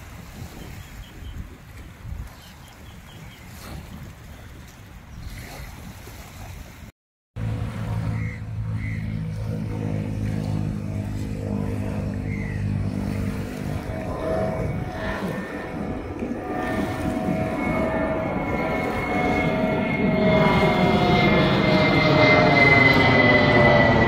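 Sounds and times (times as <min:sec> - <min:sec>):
jet airliner engine roar: 0:07.4 - 0:24.0.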